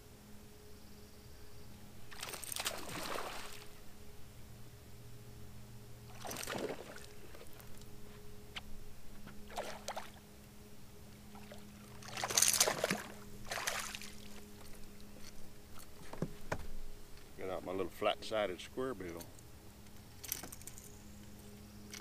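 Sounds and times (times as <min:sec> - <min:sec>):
steady low hum: 0:00.0 - 0:22.0
fish splashing in water: 0:02.1 - 0:03.7, 0:06.1 - 0:07.6, 0:09.5 - 0:10.2, 0:11.4 - 0:14.3.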